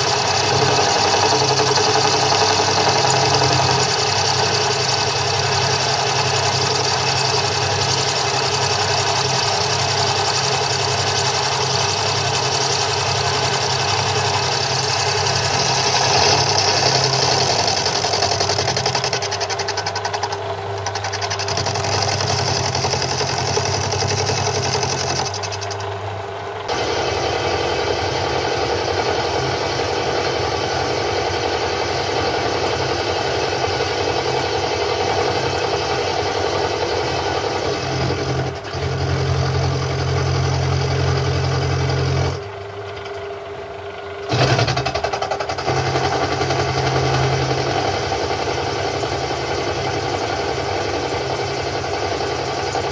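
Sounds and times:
cutter milling metal: 0.0 - 43.3, 43.9 - 52.9
lathe machine hum: 0.0 - 52.9.

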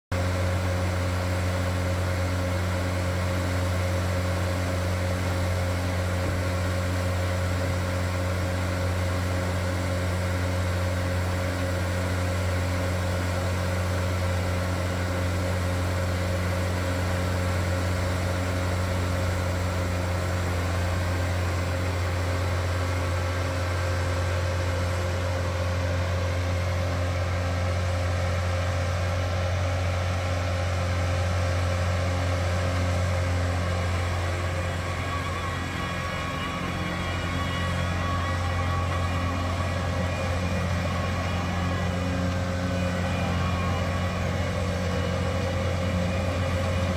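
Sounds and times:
diesel engine running: 0.1 - 46.9.

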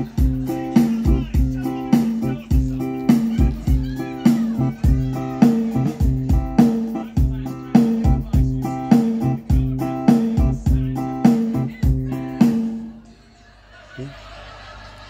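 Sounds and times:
drums and bass beat: 0.0 - 13.0.

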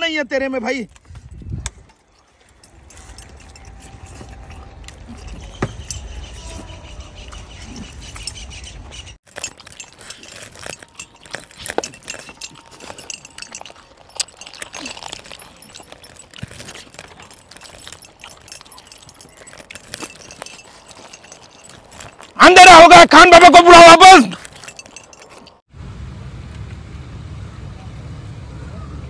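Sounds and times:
jewelry clinking on metal tray: 9.2 - 22.4, 24.3 - 25.6.

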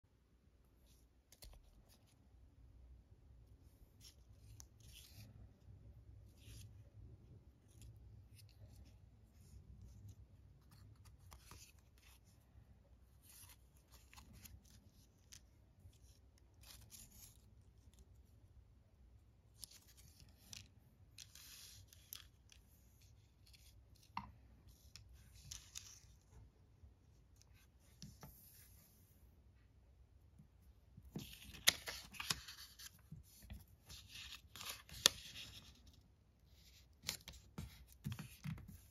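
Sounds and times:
paper rustling: 31.0 - 36.0
paper crinkling: 31.1 - 36.0.

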